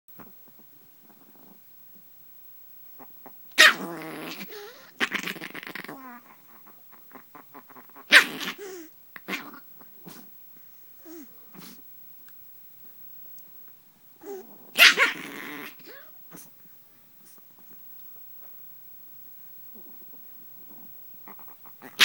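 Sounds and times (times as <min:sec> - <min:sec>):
small dog growling: 0:00.2 - 0:02.0, 0:03.0 - 0:10.4, 0:11.0 - 0:11.9, 0:14.1 - 0:17.8, 0:19.7 - 0:22.0
small dog barking: 0:03.6 - 0:04.7, 0:08.0 - 0:09.4, 0:14.3 - 0:16.1, 0:21.8 - 0:22.0.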